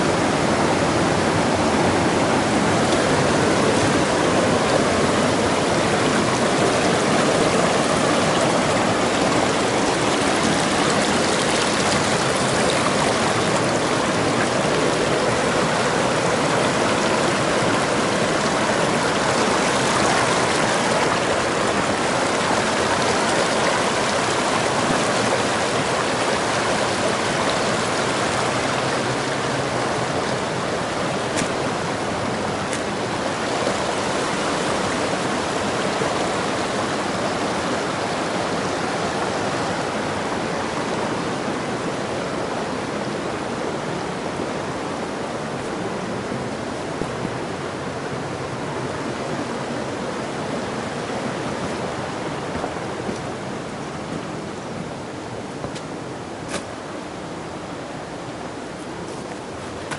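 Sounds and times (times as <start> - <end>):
brook rushing over rocks: 1.1 - 38.4.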